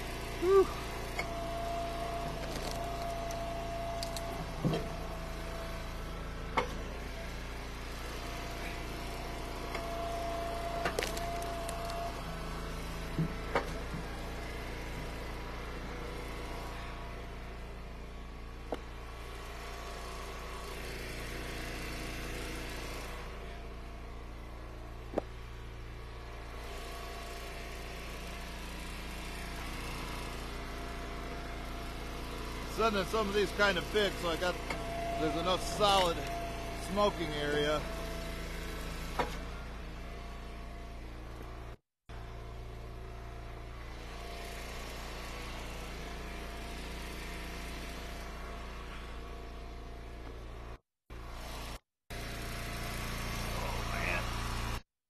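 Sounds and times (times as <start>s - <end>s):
hydraulic ram whine: 0.0s - 54.8s
gas engine running: 0.0s - 54.9s
wood splitting cracks: 10.8s - 12.0s.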